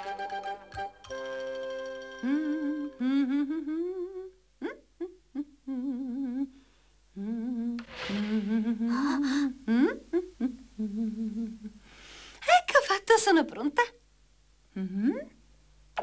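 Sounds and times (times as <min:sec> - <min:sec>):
woman humming: 0:02.2 - 0:06.5, 0:07.2 - 0:11.8, 0:14.7 - 0:15.4
rustling hiss: 0:07.8 - 0:09.7.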